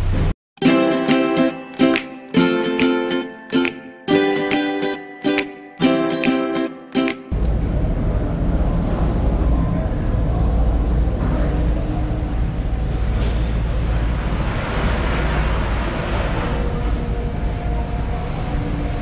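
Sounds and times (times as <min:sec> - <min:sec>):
wind rumble on microphone: 0:07.4 - 0:19.0.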